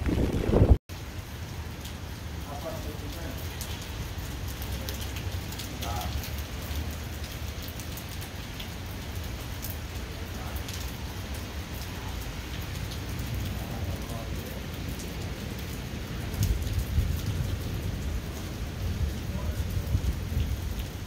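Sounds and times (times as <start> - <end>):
heavy rain falling: 0.0 - 21.0.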